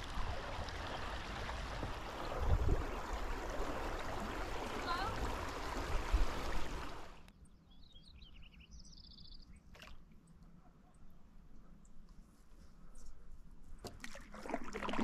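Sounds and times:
mountain stream running: 0.0s - 7.3s
bird chirps: 7.3s - 9.7s.

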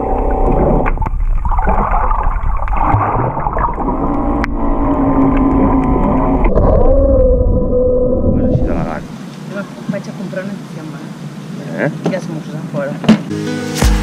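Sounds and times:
underwater rumble of water: 0.0s - 9.2s
steady droning tones: 3.7s - 6.6s, 7.4s - 13.0s.

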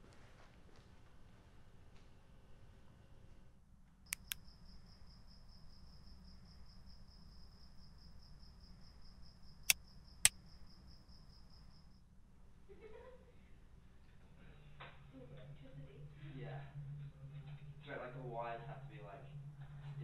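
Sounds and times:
low steady hum: 1.4s - 20.0s
sharp clicks: 4.1s - 4.4s.

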